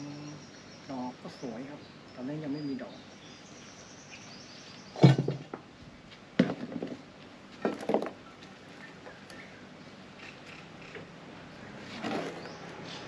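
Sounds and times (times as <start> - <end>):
knocks and rustles of potting soil: 4.7 - 9.4, 11.8 - 13.0.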